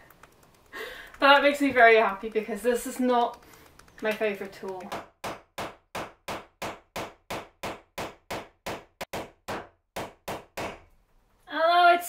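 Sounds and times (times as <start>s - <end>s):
hammer striking nails into wood: 4.4s - 10.9s.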